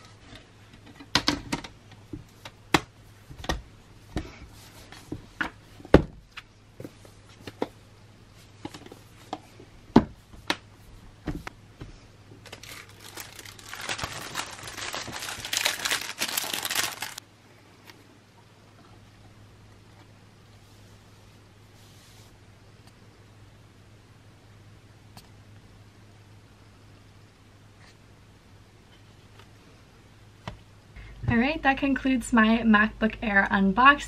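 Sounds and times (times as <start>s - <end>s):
plastic wrapper crinkling: 12.4s - 17.2s.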